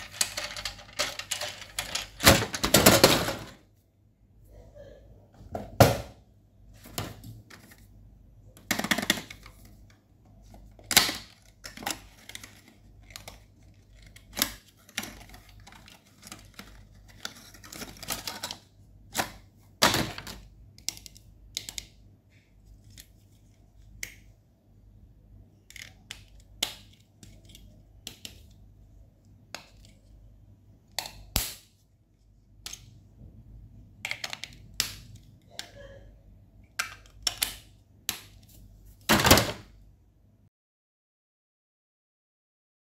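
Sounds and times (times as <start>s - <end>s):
plastic packaging clicks and crinkles: 0.0s - 3.1s, 10.5s - 19.3s.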